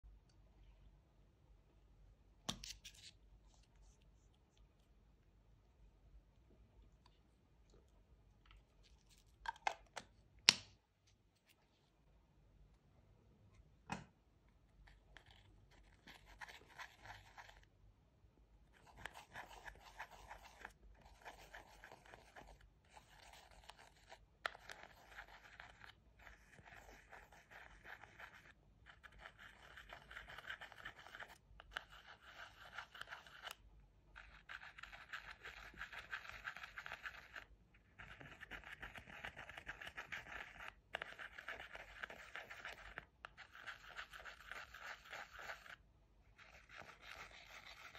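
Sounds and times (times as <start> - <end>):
plastic tool scraping powder: 18.8 - 33.6, 34.2 - 45.8, 46.4 - 47.9.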